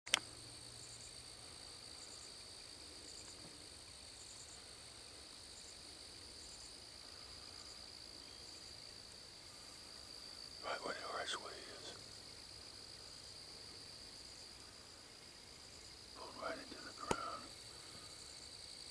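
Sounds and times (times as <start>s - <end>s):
clusters of insect chirps: 0.1s - 18.9s
crickets trilling: 0.1s - 18.9s.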